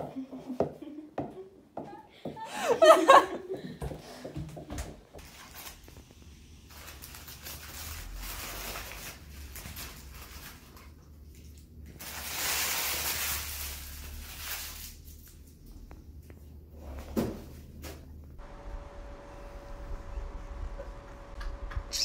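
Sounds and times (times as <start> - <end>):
steady low hum: 15.4 - 22.0.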